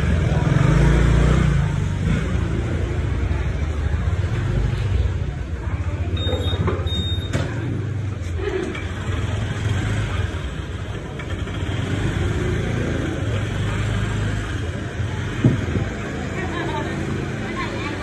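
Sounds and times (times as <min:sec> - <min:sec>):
busy alley noise: 0:00.0 - 0:18.0
scooter engines at low revs: 0:00.0 - 0:18.0.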